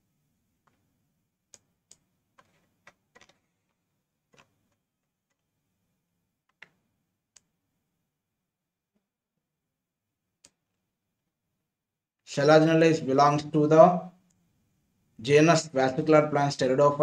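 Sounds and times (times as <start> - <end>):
faint computer mouse clicks: 10.4 - 10.6.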